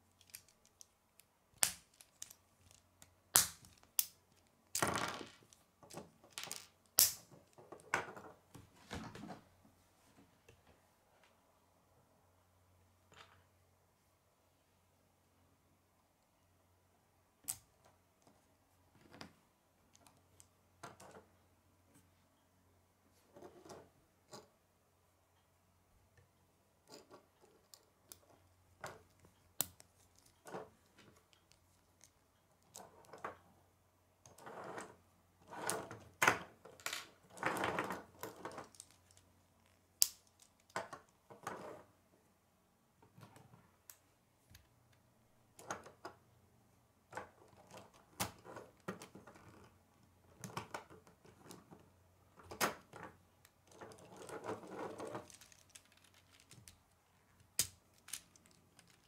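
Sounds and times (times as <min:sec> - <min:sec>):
plastic pieces clicking together: 0:00.1 - 0:07.9, 0:38.1 - 0:41.2, 0:52.5 - 0:59.0.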